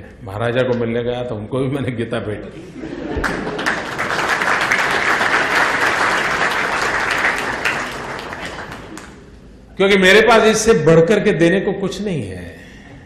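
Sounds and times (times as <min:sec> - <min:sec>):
audience applauding: 0:03.2 - 0:09.3.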